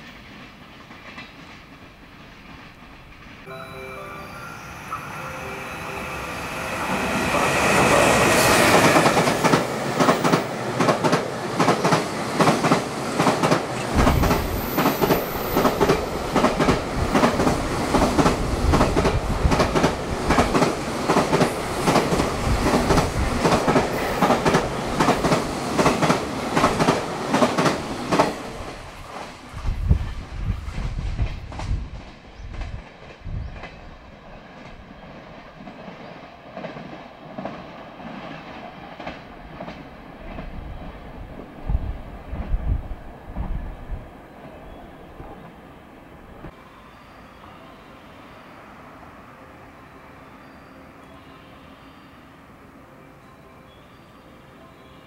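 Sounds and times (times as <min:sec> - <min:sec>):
low train rumble: 0:00.0 - 0:55.0
locomotive rushing past: 0:01.3 - 0:32.1.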